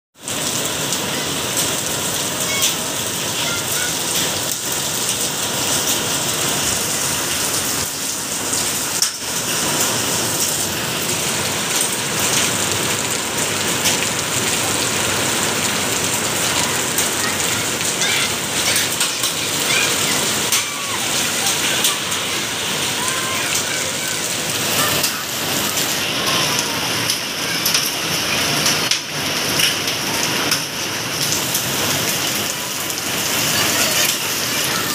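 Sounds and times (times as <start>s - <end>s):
raindrops ticking: 0.2s - 34.9s
steady rain hiss: 0.2s - 34.9s.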